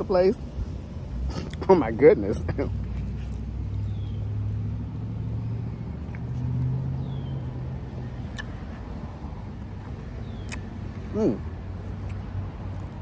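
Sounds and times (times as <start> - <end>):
motor vehicle engine humming: 0.0 - 13.0.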